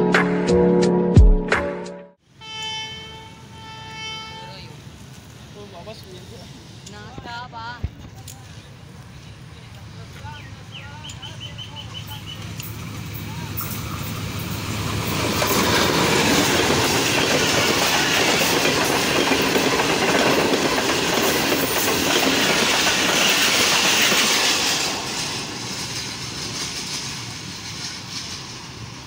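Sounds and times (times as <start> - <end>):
train passing at speed: 2.2 - 29.0
wheels clattering over rail joints: 12.4 - 29.0.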